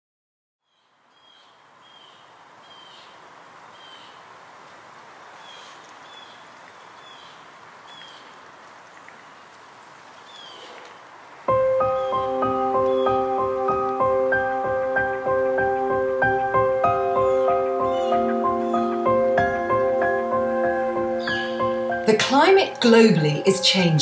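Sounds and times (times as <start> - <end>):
bird chirping: 0.6 - 4.2, 5.4 - 9.4, 10.2 - 15.0, 16.3 - 22.2
background hiss: 0.6 - 24.0.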